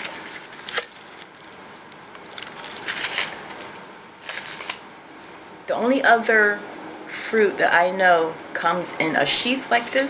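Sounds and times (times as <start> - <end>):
crackling plastic rustle: 0.0 - 5.3.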